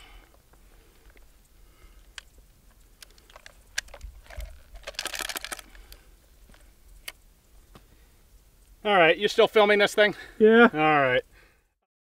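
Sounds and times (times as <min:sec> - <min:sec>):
light clicks of shotgun handling: 0:01.0 - 0:07.2.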